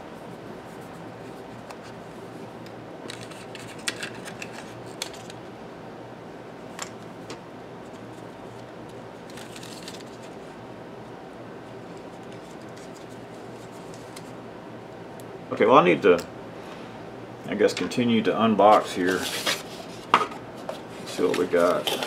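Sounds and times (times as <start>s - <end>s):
room heater hum: 0.0s - 22.0s
paper and plastic rustling: 9.3s - 10.4s, 18.7s - 22.0s.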